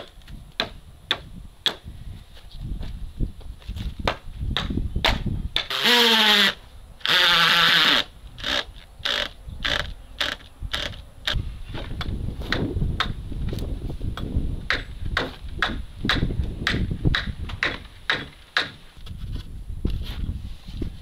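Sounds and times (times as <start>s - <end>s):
cordless drill driving screws: 5.7s - 11.0s.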